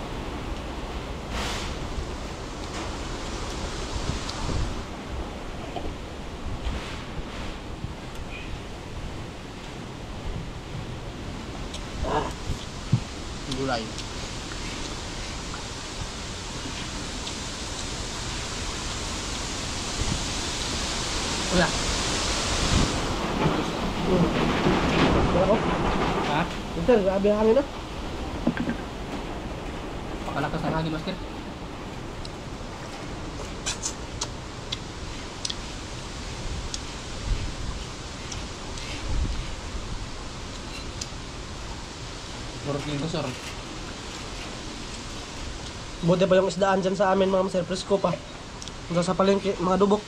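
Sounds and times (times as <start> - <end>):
strong wind rushing: 0.0 - 13.5, 14.2 - 33.4
wind rumble on microphone: 0.0 - 46.0.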